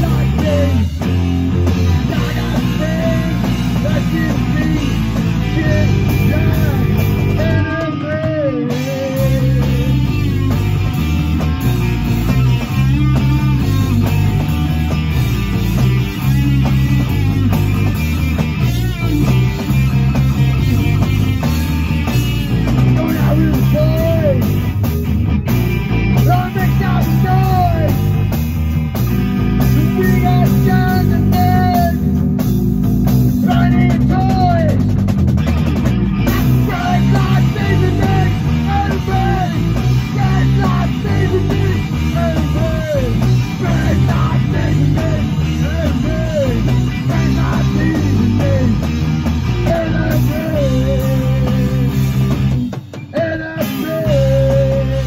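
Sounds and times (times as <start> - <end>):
person singing: 0.0 - 1.0, 2.0 - 10.4, 22.8 - 24.5, 26.2 - 28.2, 29.7 - 32.0, 36.2 - 52.1, 53.1 - 55.0
bass guitar: 0.0 - 55.0
drum kit: 0.0 - 55.0
electric guitar: 0.0 - 55.0.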